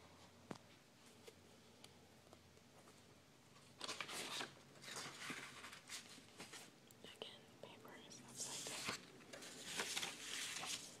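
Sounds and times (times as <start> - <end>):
paper scratching and rustling: 3.8 - 6.7, 8.4 - 11.0.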